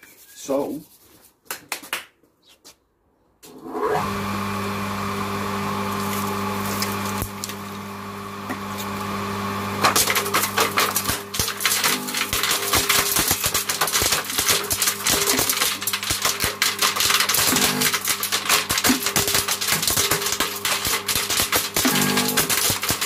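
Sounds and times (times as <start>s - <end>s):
chipper motor humming: 3.6s - 23.0s
blades chipping sticks: 9.8s - 23.0s.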